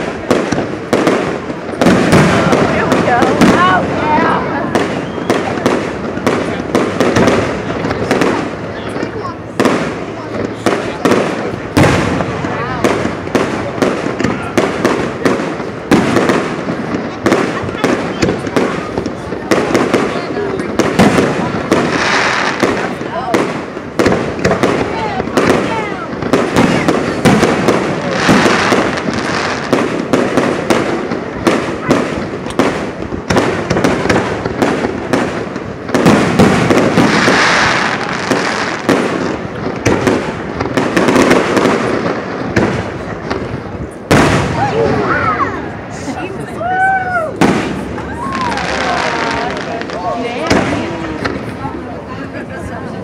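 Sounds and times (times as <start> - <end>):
fireworks shells bursting: 0.0 - 44.6
fireworks crackle: 0.0 - 53.0.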